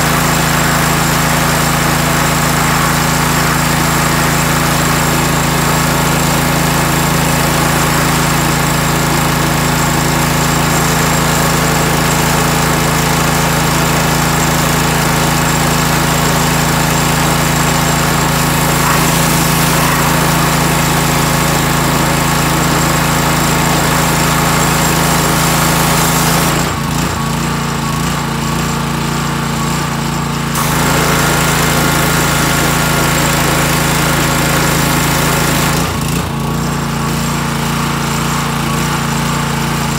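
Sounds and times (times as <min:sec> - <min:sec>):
pressure washer engine running: 0:00.0 - 0:39.9
water jet hissing on metal: 0:18.3 - 0:21.7.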